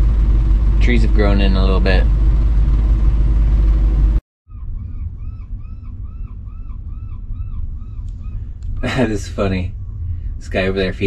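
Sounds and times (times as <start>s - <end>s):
low rumble inside vehicle cab: 0.0s - 11.0s
seagulls calling: 4.5s - 10.4s.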